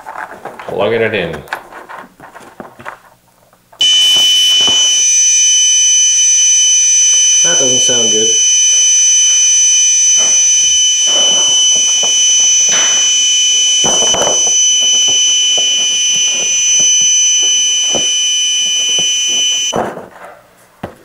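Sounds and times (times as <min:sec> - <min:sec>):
high-pitched electronic alarm tone: 0:03.8 - 0:19.8.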